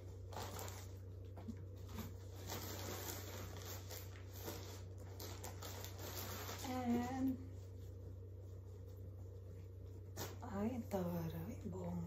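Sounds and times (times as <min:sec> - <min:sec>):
plastic bag rustling: 0:00.0 - 0:07.8.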